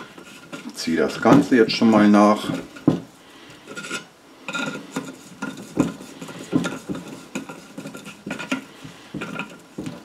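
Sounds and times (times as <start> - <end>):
short metal scrapes: 3.6 - 9.5.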